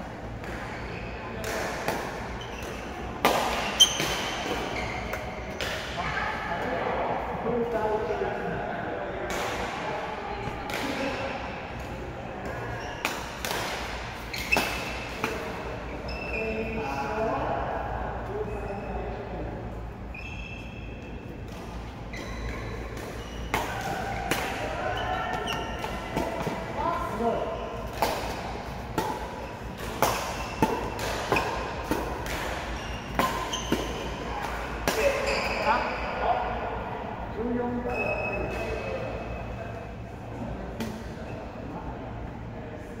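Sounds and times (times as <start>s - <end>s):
racket hitting shuttlecock: 1.4s - 6.0s, 13.0s - 15.6s, 27.8s - 35.3s.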